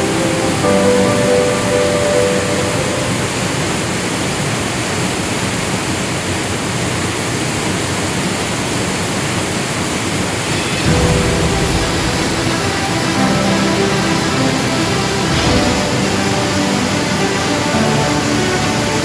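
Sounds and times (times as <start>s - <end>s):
background music: 0.0s - 3.8s, 10.5s - 19.0s
river and waterfall roar: 0.0s - 19.0s.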